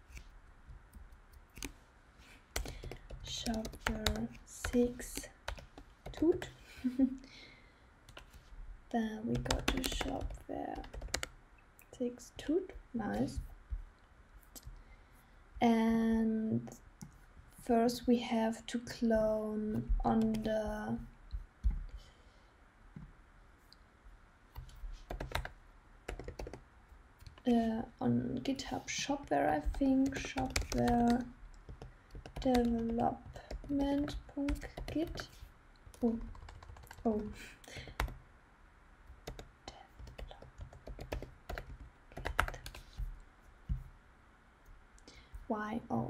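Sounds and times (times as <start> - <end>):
computer keyboard typing: 0.9 - 1.7, 2.5 - 6.5, 9.3 - 11.3, 24.6 - 26.6, 29.6 - 38.2, 39.2 - 43.0.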